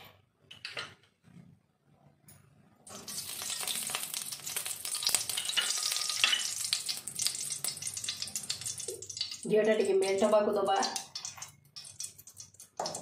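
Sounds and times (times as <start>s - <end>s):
ghee sizzling and crackling: 2.9s - 13.0s.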